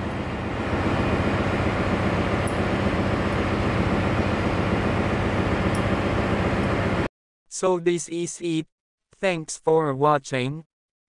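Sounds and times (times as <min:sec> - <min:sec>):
engine room machinery drone: 0:00.0 - 0:07.1.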